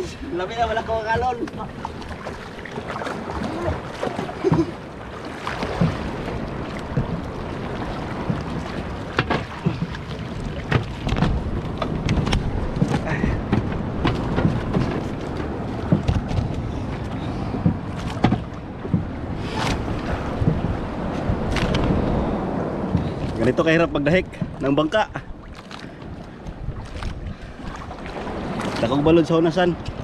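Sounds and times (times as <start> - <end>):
waves slapping against a boat: 0.0 - 30.0
wind buffeting the microphone: 0.0 - 30.0
knocks against the hull: 5.6 - 7.3, 8.0 - 16.7, 17.6 - 22.0.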